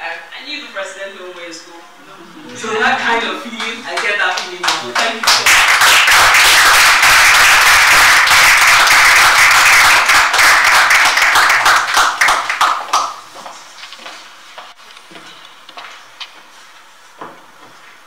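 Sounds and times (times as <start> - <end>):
small audience applauding: 3.3 - 13.3.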